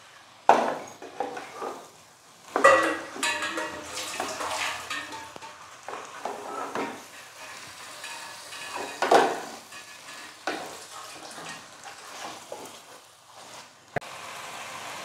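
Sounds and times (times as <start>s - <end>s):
low sizzle: 0.0s - 15.0s
spatula scraping steel pot: 2.6s - 12.5s.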